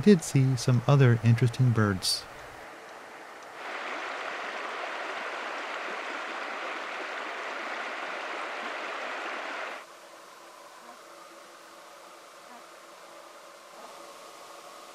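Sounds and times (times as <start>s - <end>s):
creek rushing over rocks: 3.5s - 9.8s.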